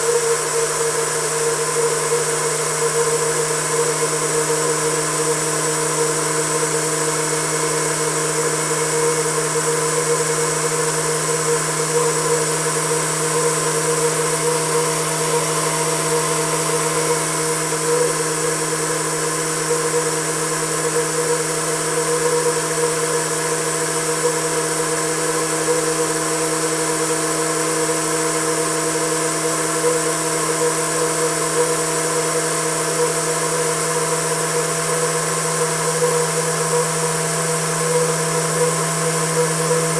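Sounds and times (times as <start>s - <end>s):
turbine whine: 0.0s - 39.9s.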